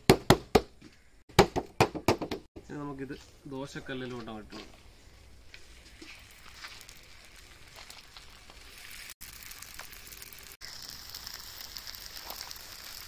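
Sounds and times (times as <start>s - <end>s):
dough sizzling on a griddle: 5.5s - 13.0s.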